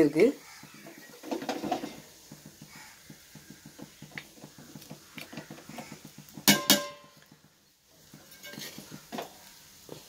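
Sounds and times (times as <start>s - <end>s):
metal ladle scraping pot: 8.2s - 9.3s.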